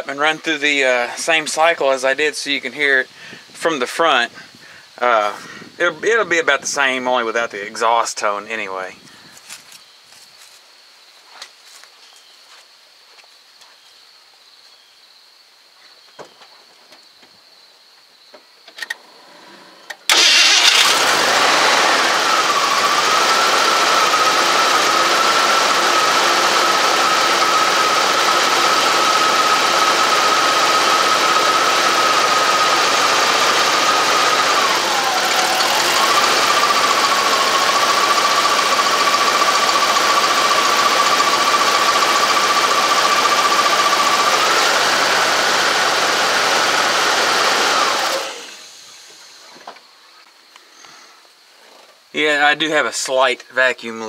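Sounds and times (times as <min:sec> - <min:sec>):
engine starting and idling: 0:19.9 - 0:49.5
steady whine: 0:20.1 - 0:49.8.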